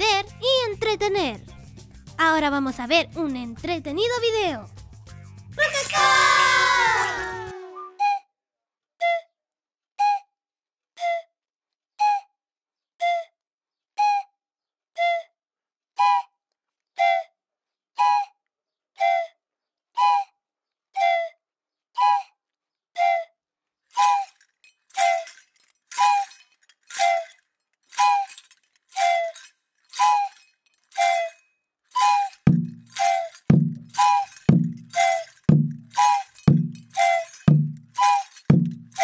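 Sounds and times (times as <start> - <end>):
small bells jingling: 0.0 - 7.5, 23.9 - 39.0
wooden whistle blasts: 5.7 - 8.3, 9.0 - 9.4, 10.0 - 10.4, 11.0 - 11.3, 12.0 - 12.4, 13.0 - 13.3, 14.0 - 14.3, 15.0 - 15.4, 16.0 - 16.4, 17.0 - 17.4, 18.0 - 18.4, 19.0 - 19.4, 20.0 - 20.4, 21.0 - 21.4, 22.0 - 22.4, 23.0 - 23.4, 24.0 - 24.4, 25.0 - 39.0.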